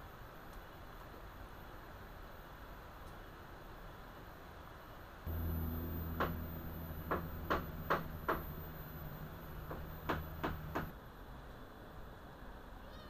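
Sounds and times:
sharp knocks: 5.3s - 10.9s
small electric motor humming: 5.3s - 10.9s.

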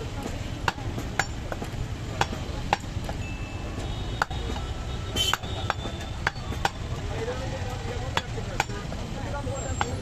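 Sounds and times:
cleaver chopping on wooden block: 0.2s - 3.2s, 4.1s - 7.0s, 8.0s - 9.0s.

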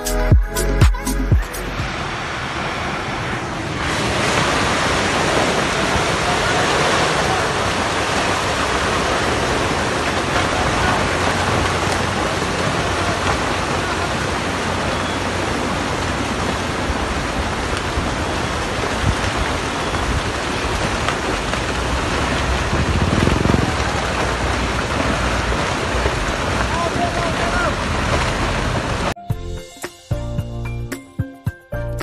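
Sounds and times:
soil and rocks pouring downhill: 3.8s - 29.2s.

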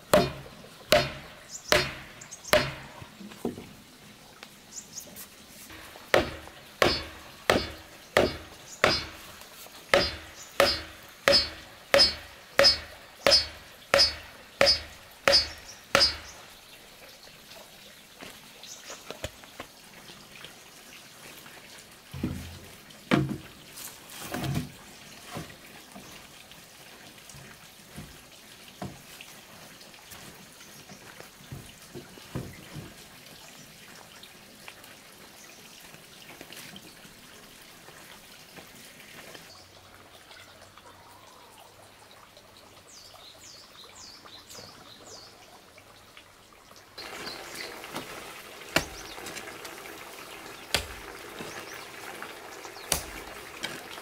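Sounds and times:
hammer blows on stake: 0.1s - 3.0s, 5.7s - 9.2s, 9.9s - 16.4s
heavier thumps: 5.7s - 9.2s, 9.9s - 16.4s.

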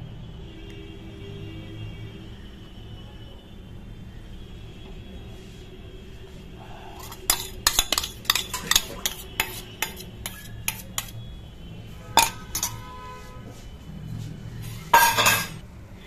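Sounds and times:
metal spoon scraping steel bowl: 6.6s - 11.3s, 12.0s - 13.3s, 14.9s - 15.6s
bowl ringing: 12.2s - 12.8s.

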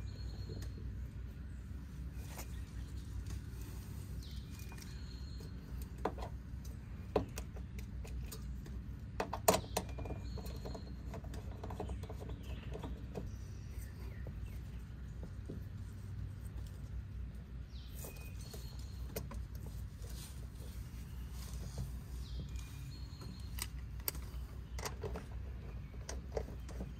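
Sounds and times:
bird chirps: 0.0s - 1.6s, 2.2s - 6.0s, 9.6s - 15.4s, 17.7s - 19.4s, 20.9s - 26.9s
steady low hum: 0.0s - 26.9s
handling clicks and knocks: 4.2s - 13.3s, 21.5s - 26.9s.

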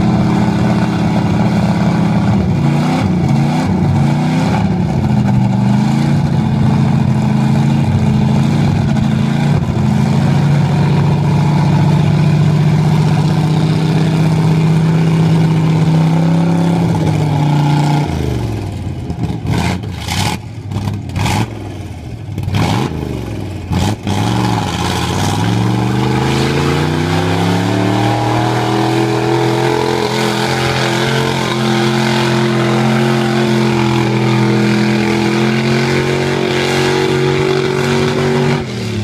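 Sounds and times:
truck engine revving: 0.0s - 39.0s
tyres spinning through mud: 23.7s - 39.0s.

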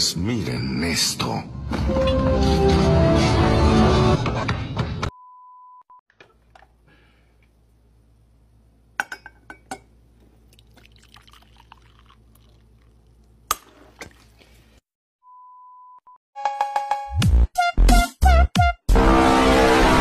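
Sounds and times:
music: 1.5s - 5.1s, 16.4s - 20.0s
glassware clinking: 9.0s - 10.0s
liquid pouring into glass bowl: 10.4s - 13.4s.

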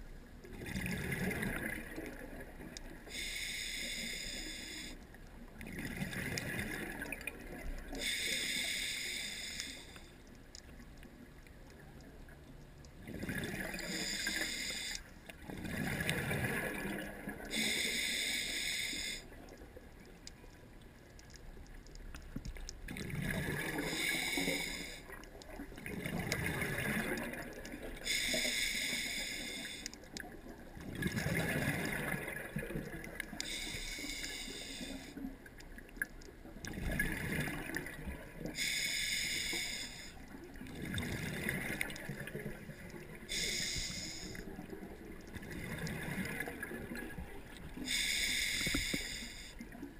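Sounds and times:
diver breathing through regulator: 3.1s - 5.0s, 8.0s - 10.0s, 13.8s - 15.1s, 17.5s - 19.3s, 23.7s - 25.1s, 28.0s - 30.0s, 33.4s - 35.2s, 38.6s - 40.2s, 43.3s - 44.5s, 47.8s - 49.6s.

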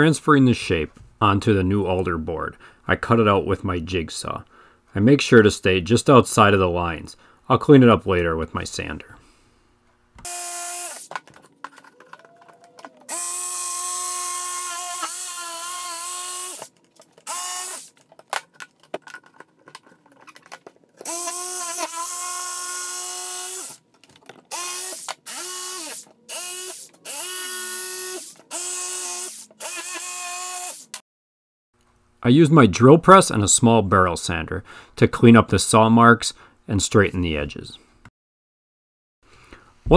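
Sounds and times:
jigsaw cutting wood: 10.2s - 11.2s, 12.8s - 17.9s, 21.0s - 23.8s, 24.5s - 31.0s.

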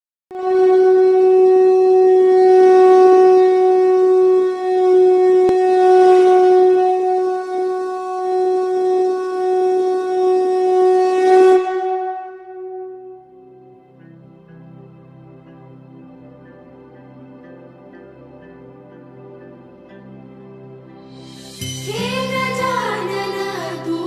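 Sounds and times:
conch shell blown: 0.3s - 14.4s.

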